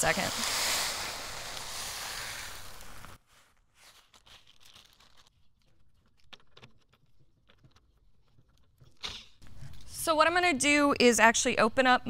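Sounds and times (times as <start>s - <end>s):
grain poured into bucket: 0.0s - 3.2s
plastic bag crinkling: 0.0s - 6.4s.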